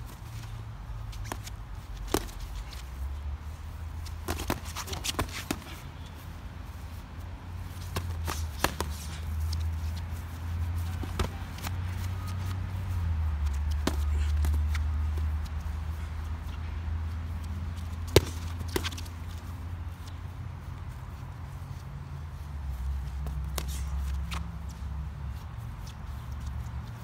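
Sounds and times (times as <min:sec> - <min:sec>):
feet shuffling on grass: 0:00.0 - 0:27.0
boxing gloves smacking: 0:01.1 - 0:02.9, 0:04.0 - 0:06.1, 0:07.7 - 0:10.1, 0:10.8 - 0:12.4, 0:13.4 - 0:15.7, 0:18.0 - 0:19.2, 0:23.2 - 0:24.5.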